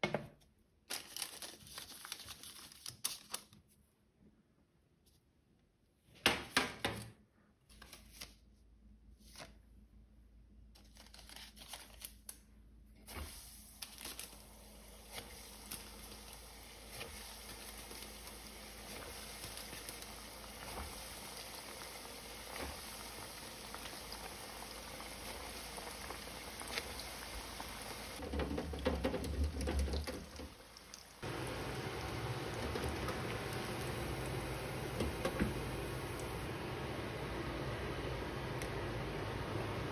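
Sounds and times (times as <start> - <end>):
oil sizzling in deep fryer: 13.1 - 39.9.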